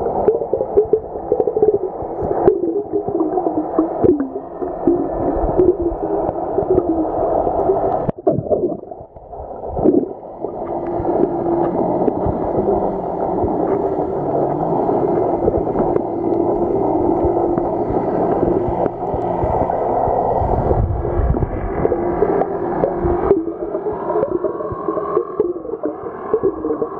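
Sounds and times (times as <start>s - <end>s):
underwater gurgling: 0.0s - 26.9s
steady low hum: 9.8s - 26.9s.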